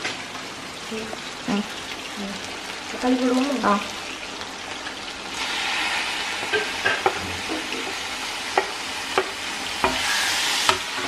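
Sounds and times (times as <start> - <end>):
vegetables sizzling in a pan: 0.0 - 11.0
wooden spatula knocking on pan: 8.6 - 10.0.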